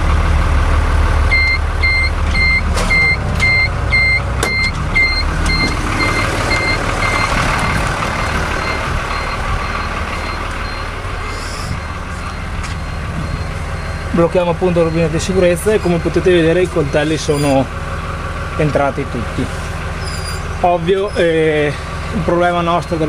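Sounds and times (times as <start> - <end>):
tractor diesel engine running: 0.0 - 23.0
high electronic warning beeps: 1.4 - 17.6.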